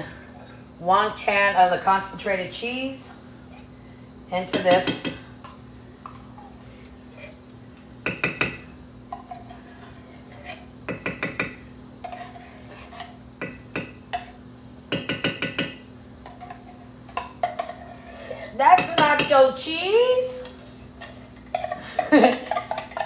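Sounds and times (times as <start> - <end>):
steady low hum: 0.0 - 23.0
utensil clinking on a skillet: 20.4 - 23.0.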